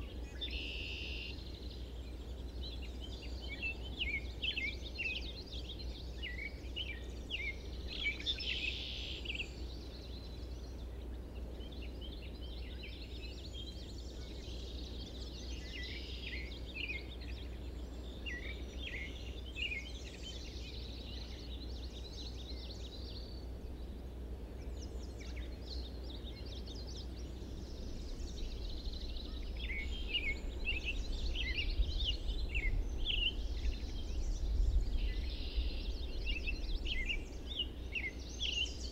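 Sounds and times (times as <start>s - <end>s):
songbirds chirping and singing: 0.0s - 38.9s
steady low rumble: 25.5s - 38.9s.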